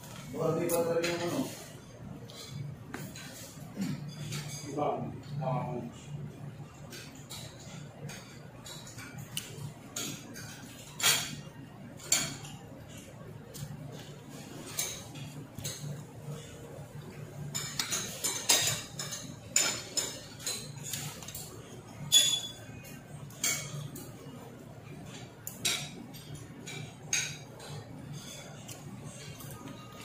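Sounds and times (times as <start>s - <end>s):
cutlery scraping on a plate: 0.7s - 4.8s, 6.8s - 16.6s, 17.5s - 24.2s, 25.0s - 30.0s.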